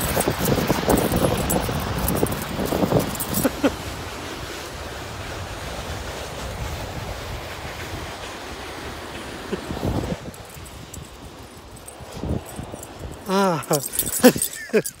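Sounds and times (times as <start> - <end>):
wind on microphone: 0.0 - 3.7, 9.5 - 14.8.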